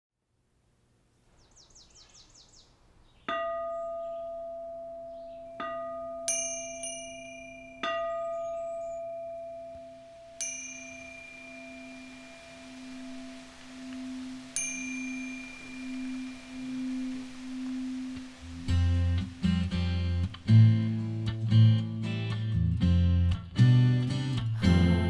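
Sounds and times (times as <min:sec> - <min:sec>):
ringing bell strikes: 0:03.3 - 0:17.3
descending chimes: 0:03.3 - 0:21.0
low held drone: 0:09.9 - 0:21.9.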